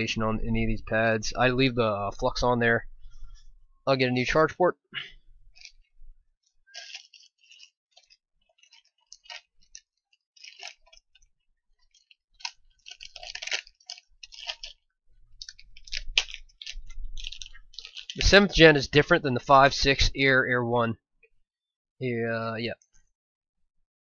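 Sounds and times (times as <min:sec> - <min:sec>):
small items clicking and rustling: 0:05.5 - 0:18.6.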